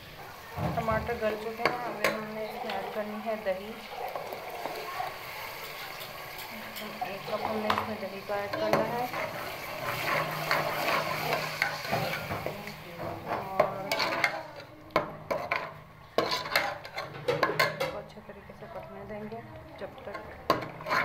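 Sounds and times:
masala sizzling in pot: 0:00.0 - 0:21.0
ladle scraping pot: 0:01.0 - 0:18.1, 0:20.0 - 0:21.0
ladle clinking against pot: 0:13.3 - 0:18.1.

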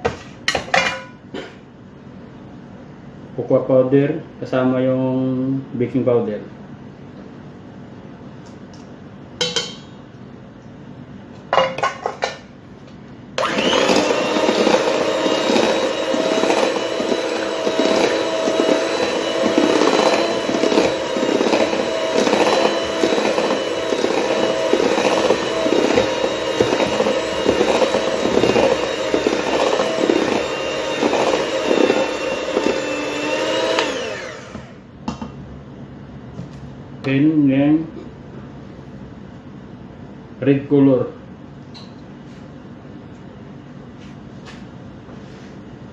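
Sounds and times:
electric hand mixer whining: 0:13.4 - 0:34.8.

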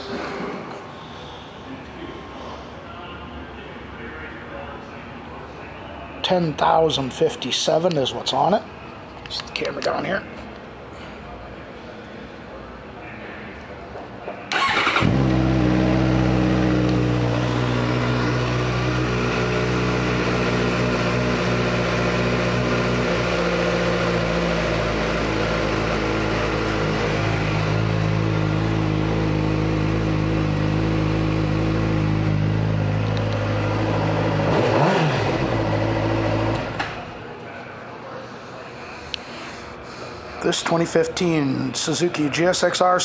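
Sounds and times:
motorcycle engine starting and idling: 0:14.5 - 0:37.2.

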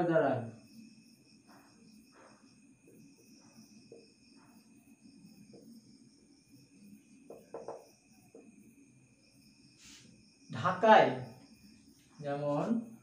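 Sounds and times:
marker squeaking on whiteboard: 0:07.3 - 0:08.4.

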